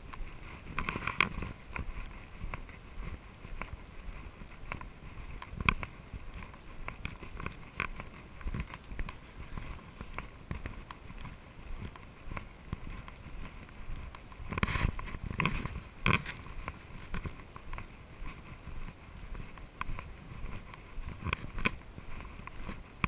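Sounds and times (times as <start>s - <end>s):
bike rattles and knocks: 11.8s - 17.8s.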